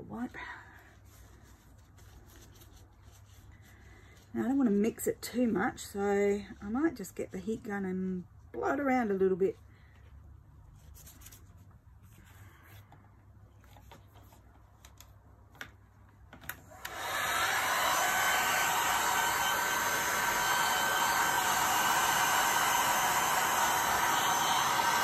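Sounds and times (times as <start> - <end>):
heat gun blowing: 16.7 - 25.0.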